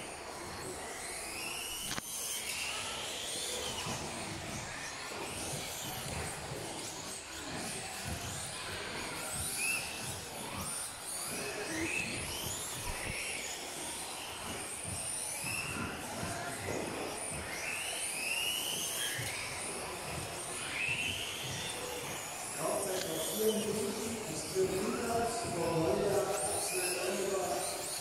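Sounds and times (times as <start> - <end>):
rc buggy motors whining: 0.0 - 28.0.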